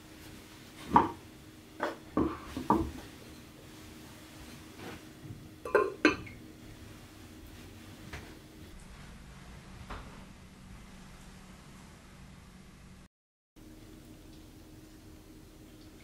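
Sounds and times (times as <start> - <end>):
ceramic pot lid clinking: 5.7 - 6.3.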